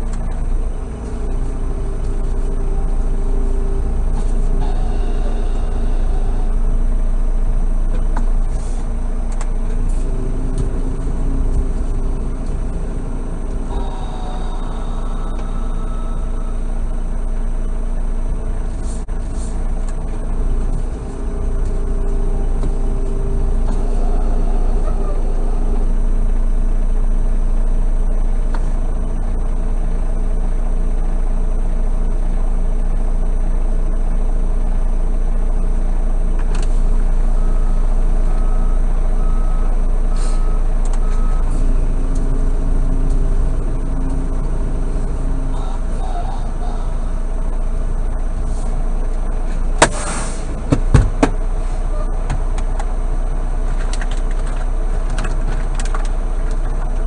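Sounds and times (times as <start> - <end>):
diesel truck engine idling: 0.0 - 57.0
evenly spaced beeps: 0.8 - 7.0, 9.9 - 18.4, 20.2 - 26.6, 37.3 - 48.4.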